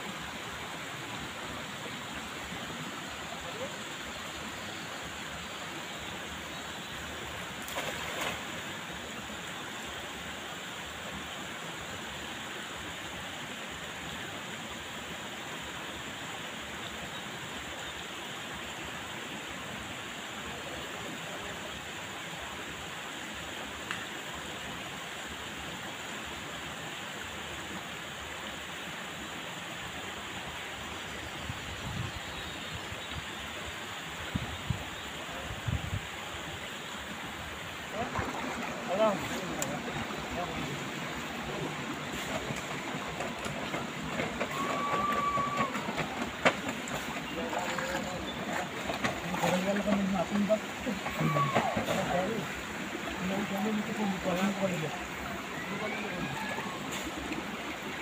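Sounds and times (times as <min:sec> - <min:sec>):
running water rushing: 0:00.0 - 0:58.0
soft low splashes: 0:07.2 - 0:09.8, 0:37.0 - 0:58.0
net splashing on water: 0:07.6 - 0:08.5, 0:46.9 - 0:52.1.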